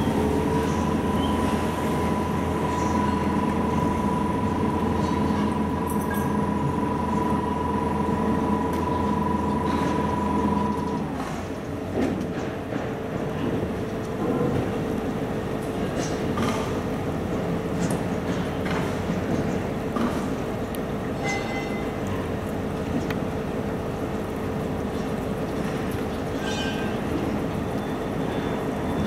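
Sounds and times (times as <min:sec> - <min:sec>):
high whine: 0:00.0 - 0:11.2
mechanical drone with low rumble: 0:00.0 - 0:11.7.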